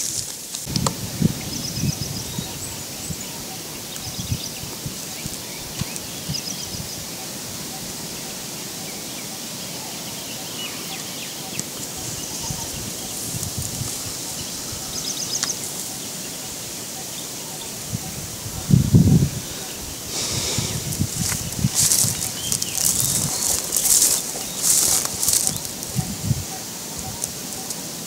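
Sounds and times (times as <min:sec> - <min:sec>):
footsteps through dry grass: 0:00.0 - 0:01.0, 0:11.9 - 0:14.7, 0:20.1 - 0:27.7
birds chirping: 0:00.0 - 0:28.0
outdoor hiss: 0:00.0 - 0:28.0.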